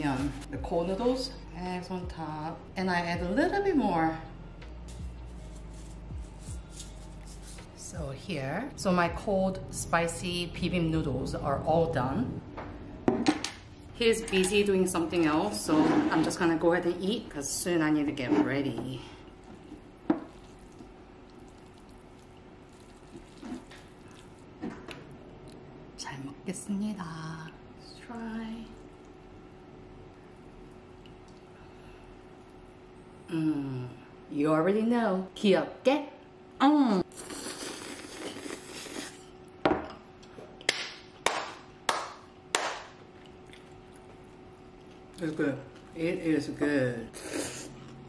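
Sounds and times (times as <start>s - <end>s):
chopsticks mixing noodles: 19.4s - 24.4s
wet squishing: 19.7s - 24.5s
noodles slurped: 37.1s - 39.2s
sharp hand claps: 40.7s - 43.0s.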